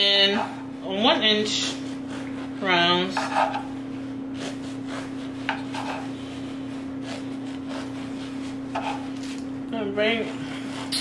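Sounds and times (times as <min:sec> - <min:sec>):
bread knife sawing loaf: 0:01.5 - 0:03.7, 0:04.3 - 0:09.2, 0:10.1 - 0:11.0.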